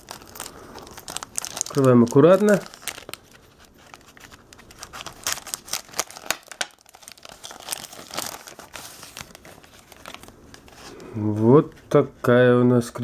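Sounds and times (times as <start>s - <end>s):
plastic mailer crinkling and tearing: 0.0s - 11.0s.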